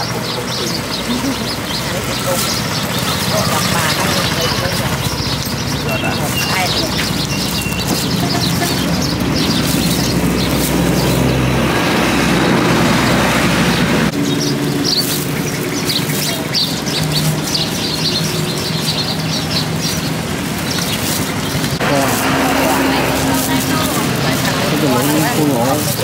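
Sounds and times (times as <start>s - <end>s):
passing vehicle traffic: 0.0s - 26.0s
street market noise: 0.0s - 26.0s.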